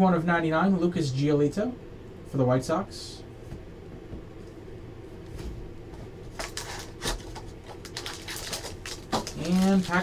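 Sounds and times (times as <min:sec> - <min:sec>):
low steady hum: 0:00.0 - 0:10.0
cards and foil pack rustling: 0:06.2 - 0:10.0.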